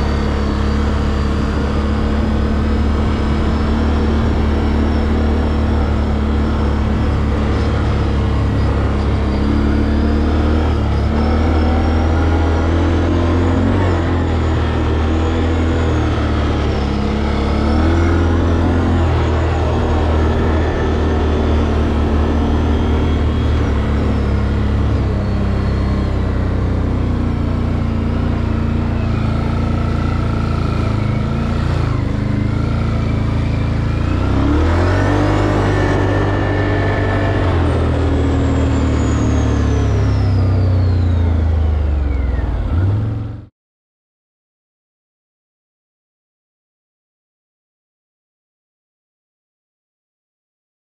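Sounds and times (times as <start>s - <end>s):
atv engine running: 0.0s - 43.5s.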